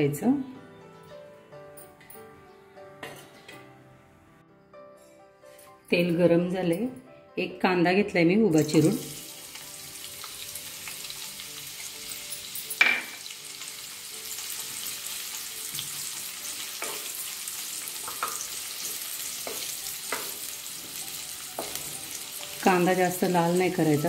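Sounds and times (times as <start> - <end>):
onions sizzling in oil: 8.6 - 24.0.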